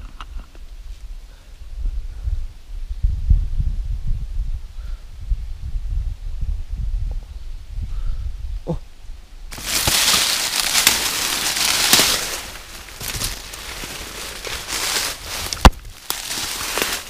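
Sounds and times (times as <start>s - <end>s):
brushing past leafy branches: 9.5s - 17.0s
footsteps crunching dry leaves: 9.5s - 17.0s.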